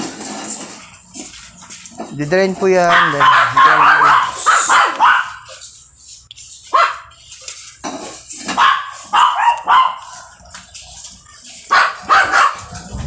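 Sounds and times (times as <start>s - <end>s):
dog barking: 2.9s - 5.5s, 6.7s - 7.1s, 8.5s - 10.2s, 11.7s - 12.7s.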